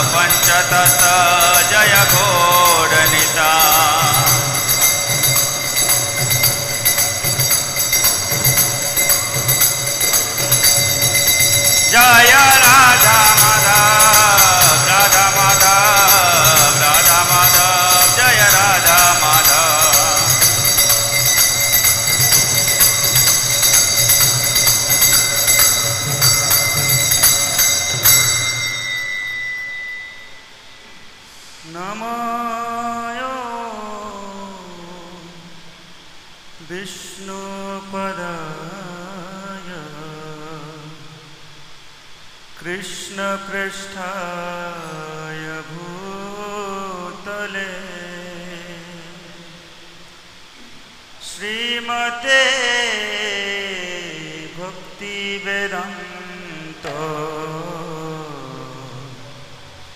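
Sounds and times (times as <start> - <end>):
people singing devotional chant: 0.0 - 28.4, 51.2 - 59.4
ringing bells: 0.0 - 31.5.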